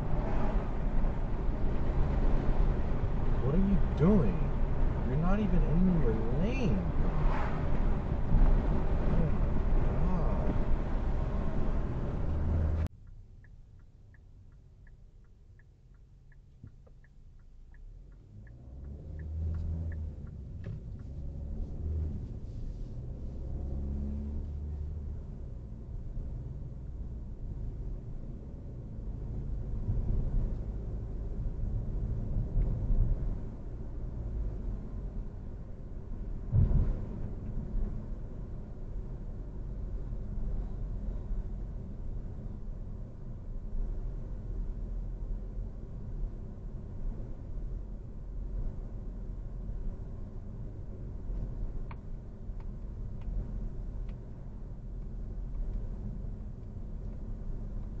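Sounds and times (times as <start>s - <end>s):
tyre and engine rumble: 0.0s - 12.9s
car engine and tyre rumble: 0.0s - 58.0s
faint ticks: 13.0s - 21.2s.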